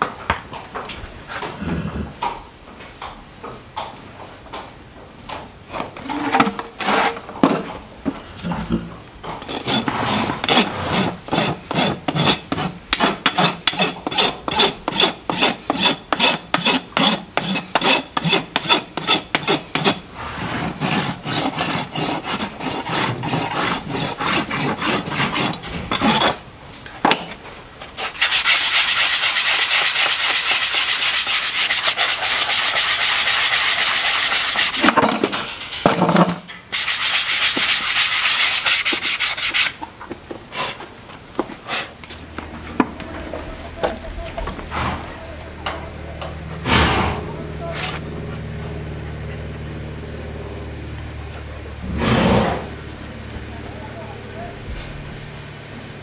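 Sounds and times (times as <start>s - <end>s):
rasp filing hoof: 5.9s - 7.3s, 9.3s - 26.4s, 27.8s - 35.0s, 36.7s - 39.9s.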